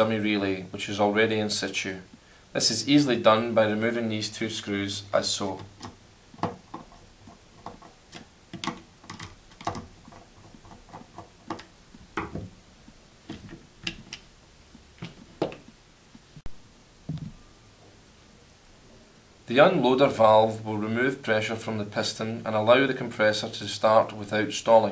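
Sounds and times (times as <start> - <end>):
screwdriver metallic clicks and taps: 5.6 - 12.5, 13.3 - 14.3
dull knocks of plastic housing: 5.6 - 12.6.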